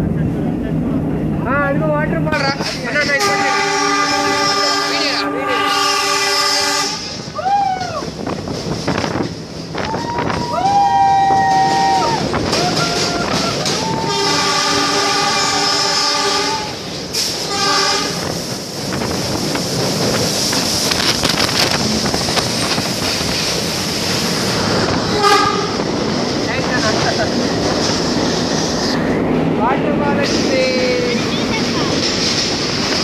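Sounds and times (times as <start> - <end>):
train wheels rumbling on rails: 0.0 - 33.0
train horn blasts: 3.1 - 7.2, 14.0 - 16.8, 17.4 - 18.3, 25.1 - 25.8.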